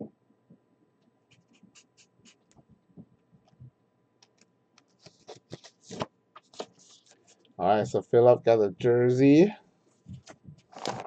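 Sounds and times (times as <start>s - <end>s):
marker scratching on paper: 1.3s - 2.4s.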